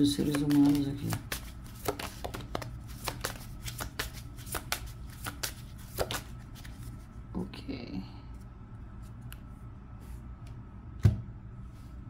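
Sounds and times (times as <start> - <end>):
cards being shuffled: 0.1 - 7.0.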